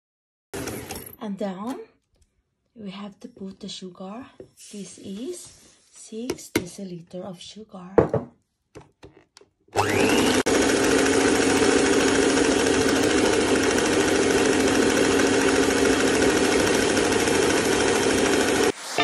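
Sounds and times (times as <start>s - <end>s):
electric mixer whisking: 9.8s - 19.0s.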